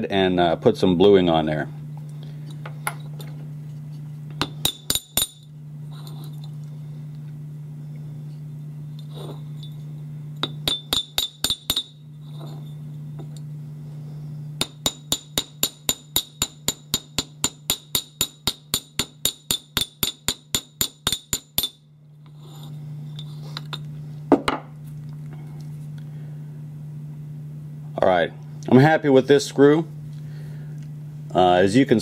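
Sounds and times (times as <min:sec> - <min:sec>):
small hammer tapping metal: 0:10.4 - 0:12.0, 0:14.6 - 0:21.8.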